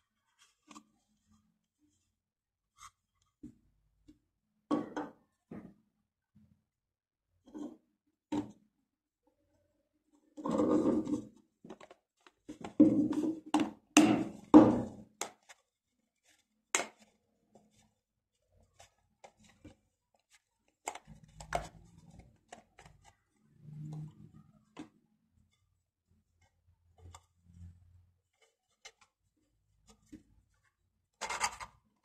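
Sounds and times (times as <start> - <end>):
plastic parts scraping: 31.2 - 31.8.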